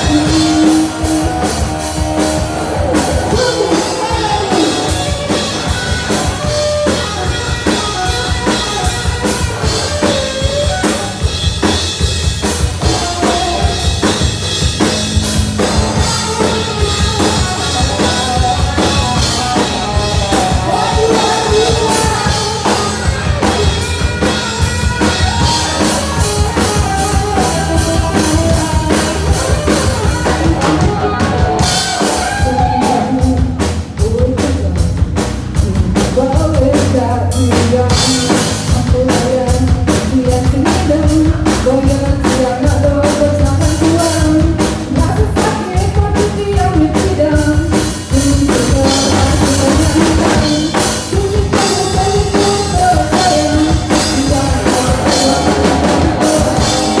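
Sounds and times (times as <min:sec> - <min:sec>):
woman singing: 0:00.0 - 0:01.7, 0:17.8 - 0:23.2, 0:32.0 - 0:57.0
bass guitar: 0:00.0 - 0:57.0
drum kit beat: 0:00.0 - 0:57.0
electric guitars: 0:00.0 - 0:57.0.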